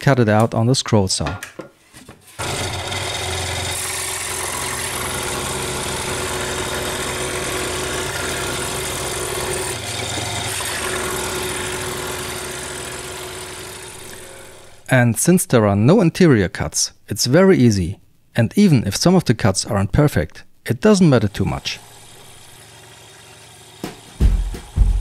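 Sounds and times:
scroll saw cutting plywood: 0:02.3 - 0:14.9, 0:21.2 - 0:24.8.

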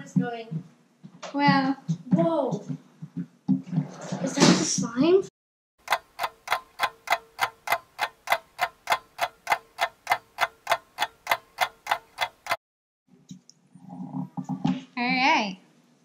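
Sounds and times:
clock ticking: 0:05.8 - 0:12.6.

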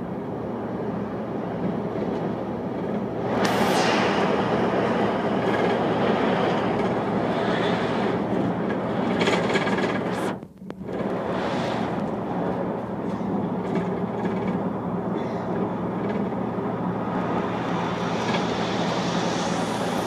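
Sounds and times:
bus engine drone: 0:00.0 - 0:20.0
road and wind noise: 0:00.0 - 0:20.0.

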